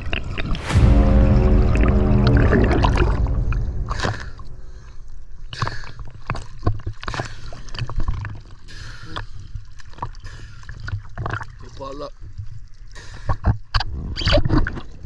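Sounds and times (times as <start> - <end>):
water sloshing and splashing: 0.0 - 5.0
background music: 0.2 - 5.2.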